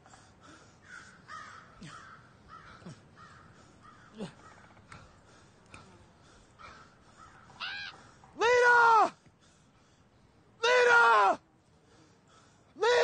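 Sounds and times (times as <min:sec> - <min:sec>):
crows cawing: 0:00.5 - 0:05.4, 0:06.6 - 0:08.1.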